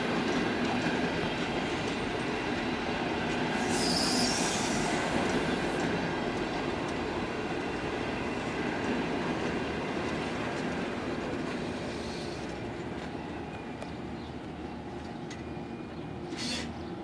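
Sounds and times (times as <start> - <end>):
train wheels rumbling on rails: 0.0 - 17.0
faint high wheel squeal: 3.6 - 5.1, 15.4 - 17.0.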